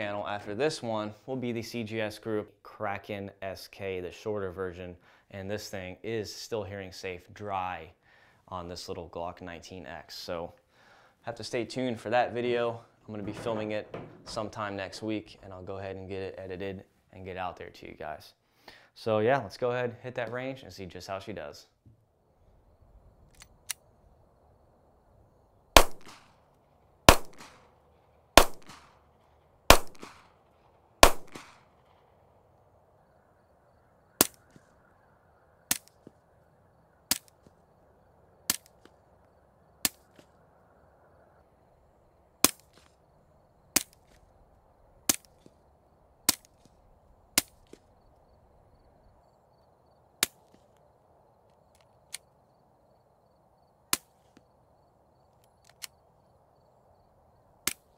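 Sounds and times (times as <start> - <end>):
pistol shots with ringing echo: 25.8 - 26.3, 27.1 - 27.7, 28.4 - 29.0, 29.7 - 32.1
suppressed pistol shots: 25.8 - 26.3, 27.1 - 27.7, 28.4 - 29.0, 29.7 - 32.1.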